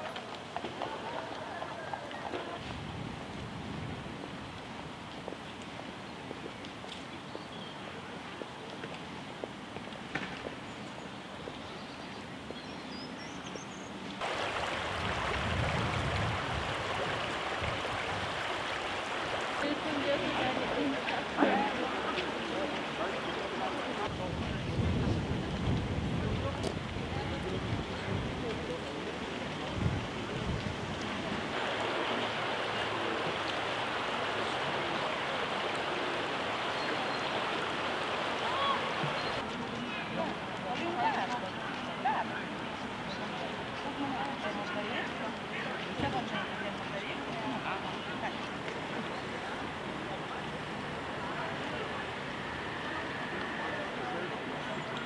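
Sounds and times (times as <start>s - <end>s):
rushing river: 0.0s - 55.0s
steady low hiss: 2.5s - 55.0s.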